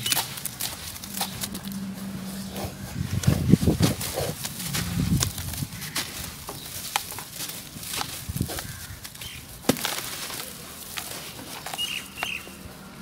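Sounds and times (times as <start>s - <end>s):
dried dirt crumbling crackles: 0.0s - 13.0s.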